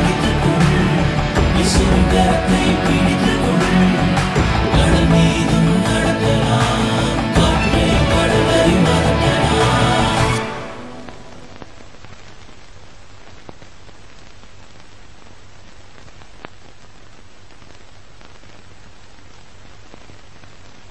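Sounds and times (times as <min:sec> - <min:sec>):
music ending: 0:00.0 - 0:11.8.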